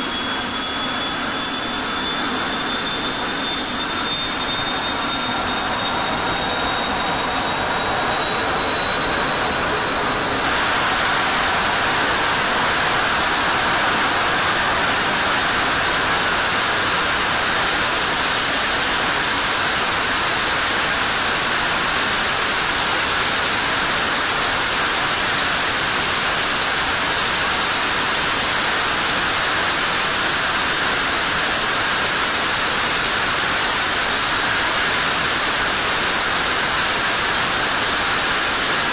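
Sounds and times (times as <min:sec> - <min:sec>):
jet engine roaring: 0:00.0 - 0:27.0
high whine: 0:00.0 - 0:38.9.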